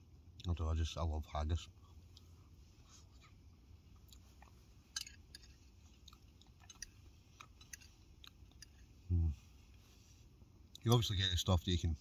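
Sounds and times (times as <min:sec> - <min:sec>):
person chewing food: 0:03.2 - 0:09.0.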